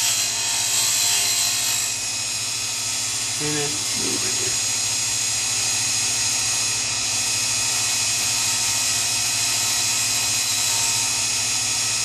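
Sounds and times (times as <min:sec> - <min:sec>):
grinding wheel whining: 0:00.0 - 0:12.0.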